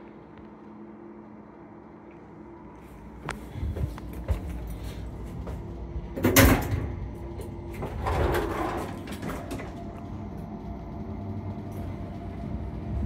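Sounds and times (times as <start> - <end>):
lift machinery hum: 0.0 - 13.0
lift doors sliding: 6.1 - 10.4.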